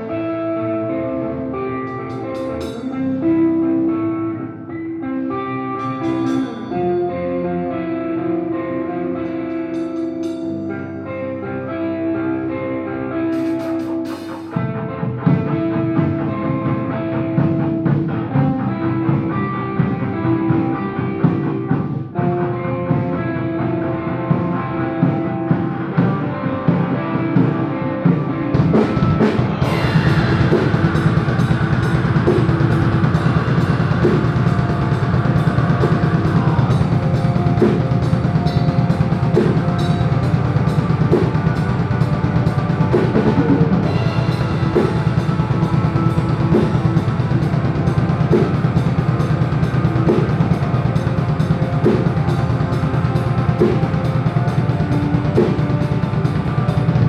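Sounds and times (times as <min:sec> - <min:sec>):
distorted electric guitars: 0:00.0 - 0:57.0
fast drum beat with cymbals: 0:28.6 - 0:57.0.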